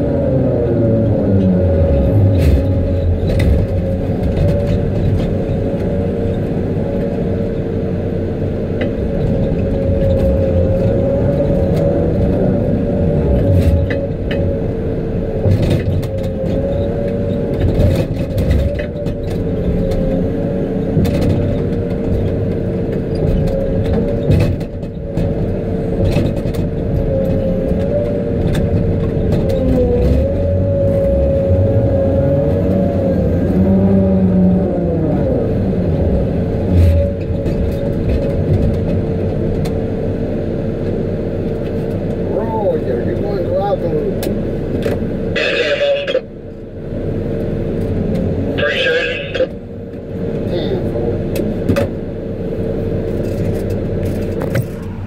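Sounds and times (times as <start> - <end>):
diesel engine and hydraulics running: 0.0 - 55.0
steady whine: 28.1 - 55.0.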